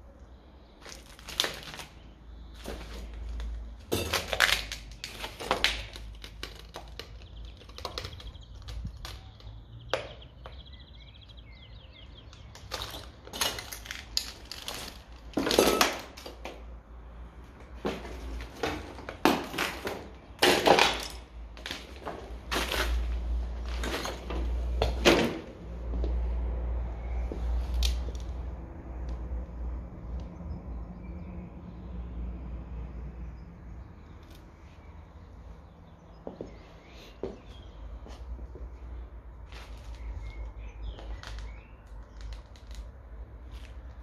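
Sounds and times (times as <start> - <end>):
footsteps crunching on debris: 0.8 - 6.9, 17.6 - 26.2
rubble cracking and clinking: 0.8 - 10.3, 12.3 - 16.7, 17.9 - 25.5, 39.5 - 44.0.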